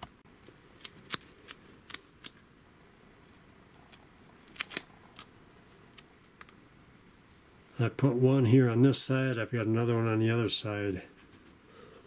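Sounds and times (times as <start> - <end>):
duct tape crackling: 3.2 - 6.6.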